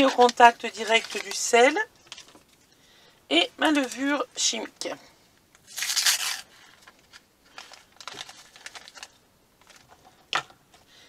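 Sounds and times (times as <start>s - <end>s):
packet rustling and crinkling: 0.0s - 2.8s, 3.7s - 4.3s, 5.6s - 10.5s
packet tearing open: 5.6s - 9.8s.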